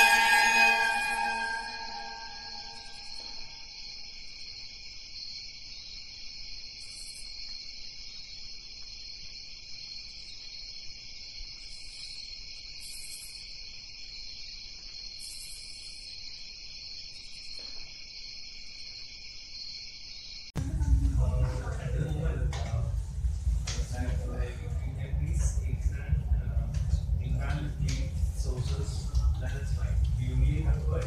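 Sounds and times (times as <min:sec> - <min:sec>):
short high-pitched buzzes: 0:00.0 - 0:03.4
night insects chirping: 0:00.0 - 0:20.6.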